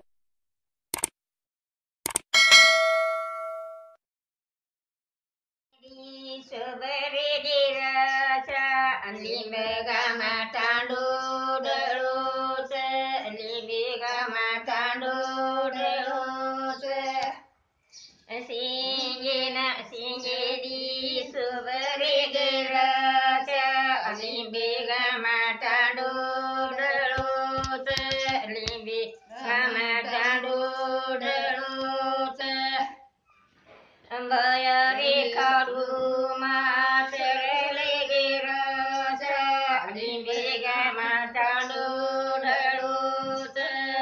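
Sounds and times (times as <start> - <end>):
elderly woman singing: 5.8 - 17.4, 18.3 - 33.0, 34.1 - 44.0
soft knocks: 27.2 - 28.8.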